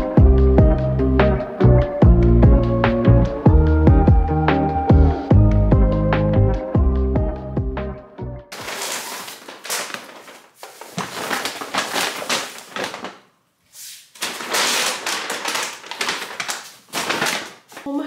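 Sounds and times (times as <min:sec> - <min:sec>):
paper bags rustling: 0:08.5 - 0:18.0.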